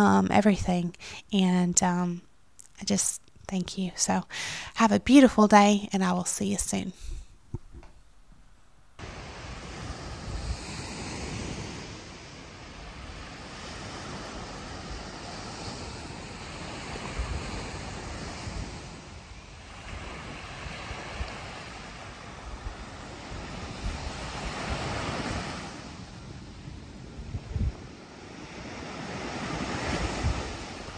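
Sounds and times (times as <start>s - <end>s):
waves breaking on sandy beach: 9.0s - 30.9s
wind buffeting microphone: 9.0s - 30.9s.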